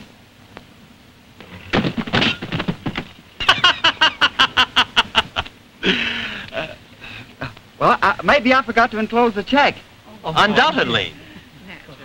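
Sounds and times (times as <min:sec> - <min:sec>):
person laughing: 0:03.4 - 0:06.8.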